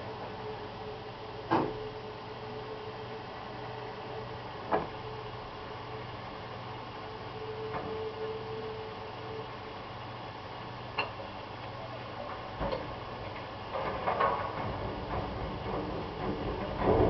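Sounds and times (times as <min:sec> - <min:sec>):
steady low hum: 0:00.0 - 0:17.0
metallic clanks and knocks: 0:12.6 - 0:17.0.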